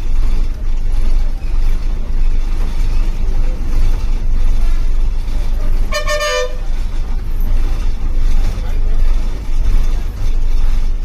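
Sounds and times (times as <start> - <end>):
bus engine and road noise: 0.0 - 11.0
vehicle horn toot: 5.9 - 6.6.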